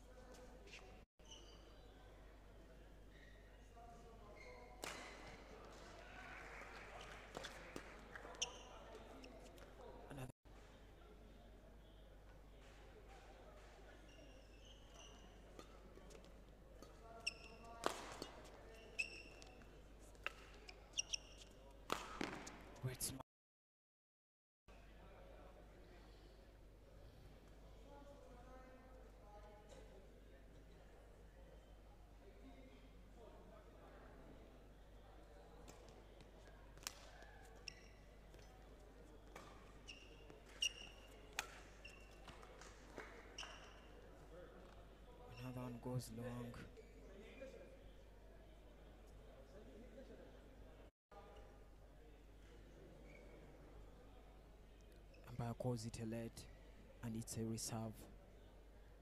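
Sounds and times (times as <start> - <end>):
shoes squeaking on floor: 0.7 - 1.8, 14.0 - 15.4, 17.2 - 19.7, 20.4 - 21.6, 37.5 - 38.6, 39.4 - 42.4, 43.3 - 44.0.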